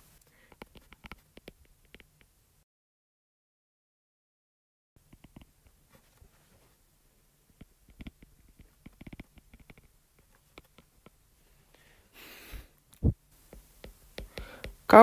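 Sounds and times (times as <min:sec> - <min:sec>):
soft hiss: 0:00.0 - 0:02.6, 0:05.0 - 0:15.0
stylus tapping on tablet screen: 0:00.5 - 0:02.3, 0:05.0 - 0:05.8, 0:07.6 - 0:11.2, 0:13.4 - 0:14.9.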